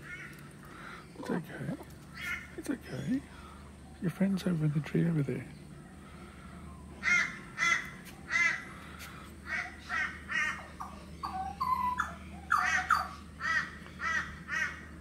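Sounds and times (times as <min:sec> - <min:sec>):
crows cawing: 0:00.0 - 0:01.2, 0:02.1 - 0:02.6, 0:06.0 - 0:15.0
bird whistling: 0:10.8 - 0:13.2.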